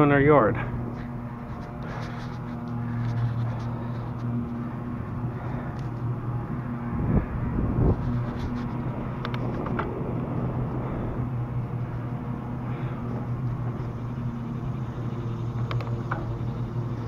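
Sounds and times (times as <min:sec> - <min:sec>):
steady low drone: 0:00.0 - 0:17.0
wind rushing over microphone: 0:02.2 - 0:13.9.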